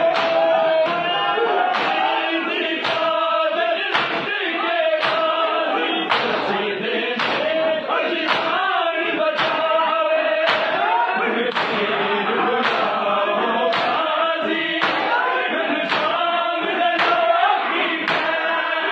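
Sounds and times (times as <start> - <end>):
men chanting in unison: 0.0 - 18.9
hands striking bare chests: 1.7 - 2.1.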